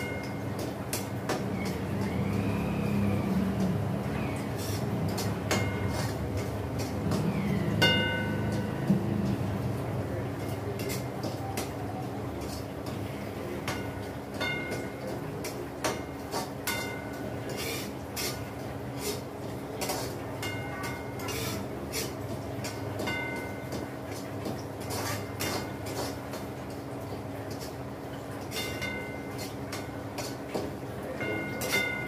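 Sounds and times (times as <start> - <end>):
spoon scraping metal pan: 4.6 - 7.0.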